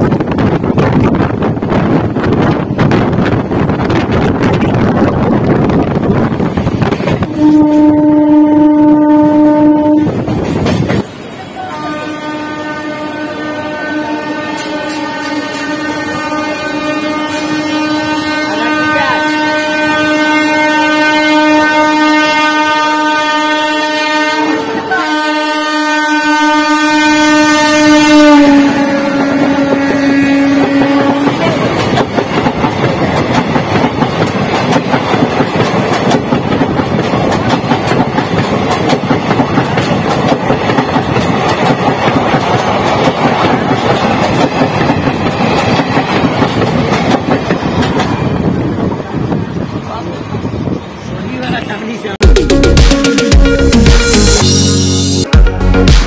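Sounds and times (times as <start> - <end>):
train wheels rattling on rail: 0.0 - 52.2
train horn blast: 7.2 - 10.3, 11.5 - 31.8.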